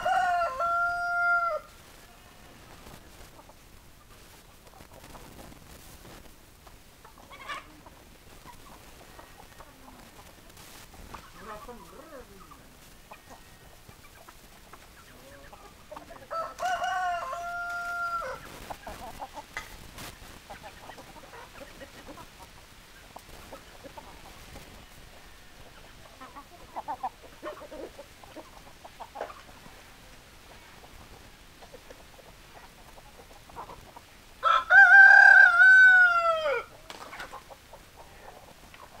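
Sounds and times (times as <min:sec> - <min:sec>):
rooster crowing: 0:00.0 - 0:02.6, 0:16.2 - 0:18.4, 0:34.4 - 0:36.7
hens clucking: 0:00.0 - 0:39.0.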